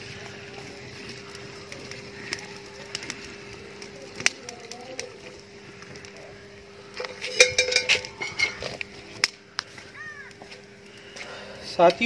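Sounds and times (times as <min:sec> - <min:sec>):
faint steady hum: 0:00.0 - 0:12.0
metallic clinks of steel vessel: 0:07.2 - 0:08.6.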